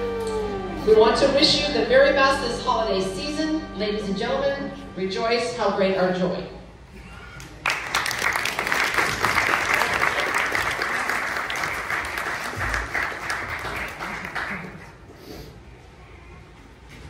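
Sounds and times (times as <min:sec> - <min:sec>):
audience applauding: 0:07.4 - 0:15.1.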